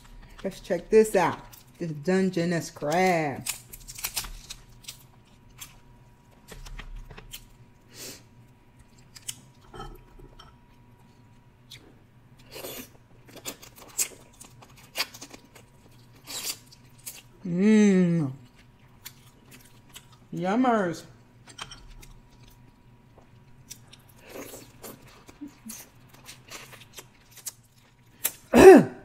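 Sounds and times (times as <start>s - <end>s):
crab shell cracking: 3.0s - 5.8s.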